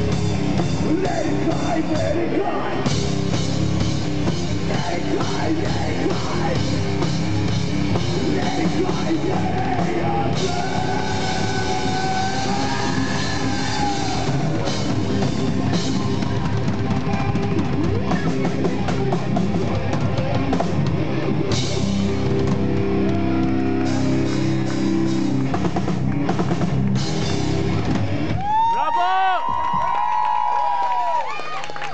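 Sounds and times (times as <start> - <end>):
drum kit with cymbals: 0.0 - 2.2, 2.8 - 28.4
electric guitar: 0.0 - 28.8
rock band playing: 0.0 - 29.7
bass guitar: 0.0 - 30.0.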